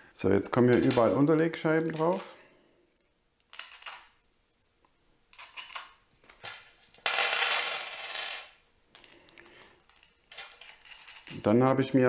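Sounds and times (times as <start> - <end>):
metal washers clinking: 3.5 - 4.2.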